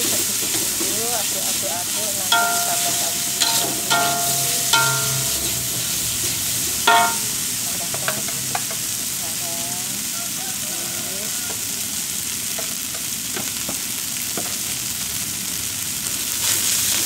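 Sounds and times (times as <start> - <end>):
rice sizzling in a wok: 0.0 - 17.0
spatula clanging on wok: 2.2 - 9.0
metal spatula scraping wok: 2.3 - 8.3.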